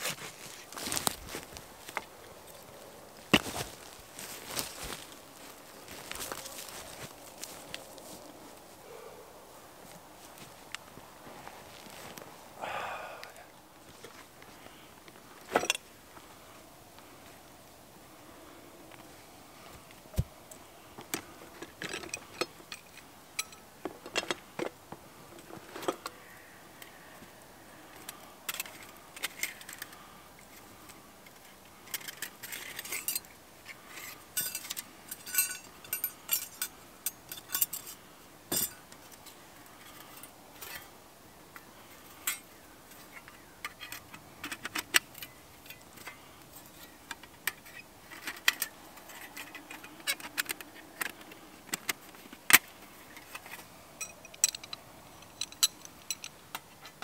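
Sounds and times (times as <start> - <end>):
light clicks and clinks: 21.1 - 24.4, 31.2 - 40.9, 53.1 - 57.0.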